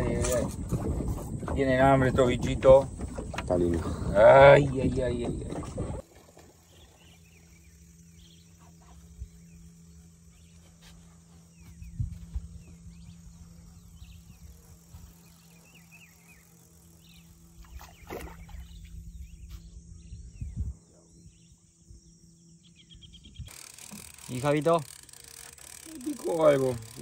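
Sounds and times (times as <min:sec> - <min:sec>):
insect buzz: 0:00.0 - 0:27.0
low hum: 0:00.0 - 0:27.0
bird chirps: 0:06.7 - 0:23.5.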